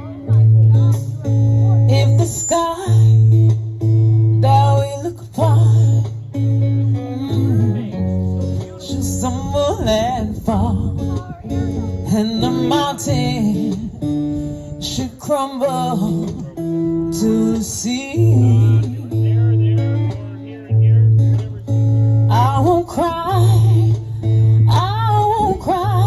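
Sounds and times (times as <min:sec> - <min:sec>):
strummed acoustic guitar: 0:00.0 - 0:26.0
woman singing with vibrato: 0:22.3 - 0:26.0.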